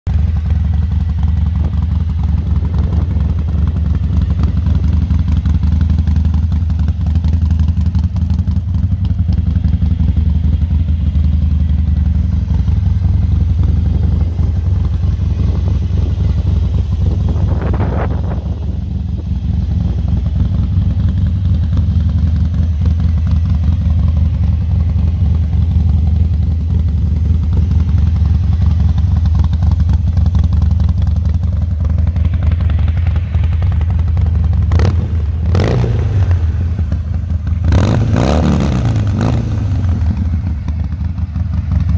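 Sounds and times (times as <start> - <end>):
motorcycle engine idling: 0.1 - 41.9.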